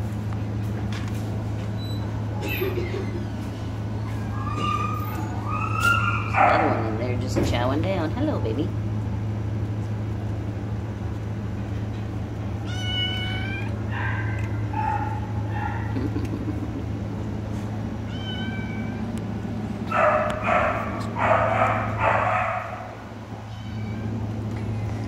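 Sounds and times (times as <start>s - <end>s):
steady low hum: 0.0s - 25.0s
cats meowing: 4.0s - 6.8s, 12.6s - 16.0s, 18.0s - 19.2s, 19.9s - 24.2s.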